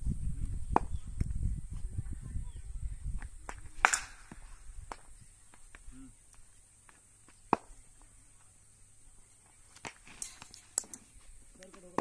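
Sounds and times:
cricket bat hitting ball: 3.8s - 4.5s.

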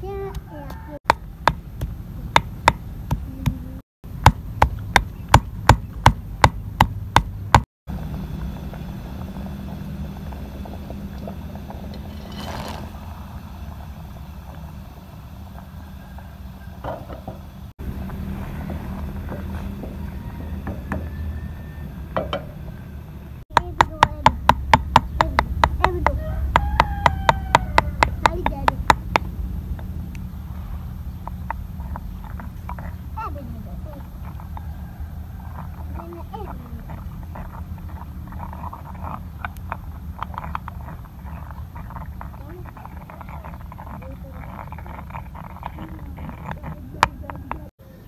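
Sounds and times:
stone pestle pounding in mortar: 0.7s - 7.7s, 23.5s - 29.3s, 35.5s - 47.7s.

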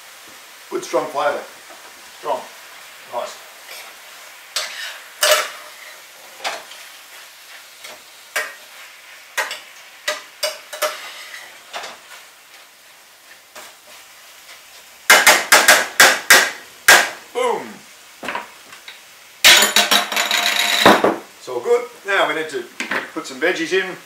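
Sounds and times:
meat sizzling: 0.0s - 24.0s
utensil scraping frying pan: 3.6s - 12.3s.

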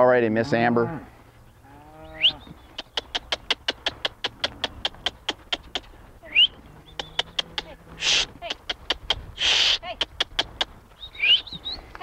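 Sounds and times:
fast run of sharp clicks: 2.8s - 6.0s, 6.9s - 10.8s.

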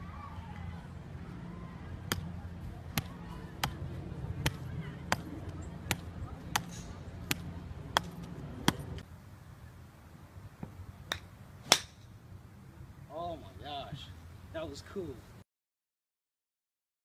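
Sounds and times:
golf club striking balls: 2.0s - 2.3s, 2.9s - 9.1s, 10.6s - 12.2s.

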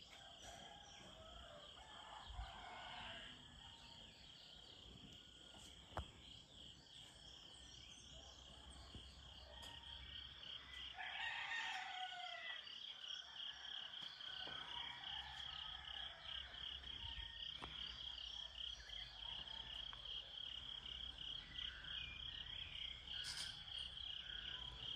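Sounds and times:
insects chirping: 0.0s - 24.9s
rooster crowing: 0.2s - 3.6s, 10.9s - 12.7s.

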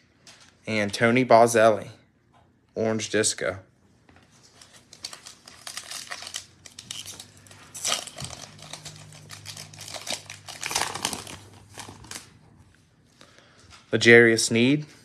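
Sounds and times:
foil wrapper crinkling and tearing: 4.5s - 12.4s.

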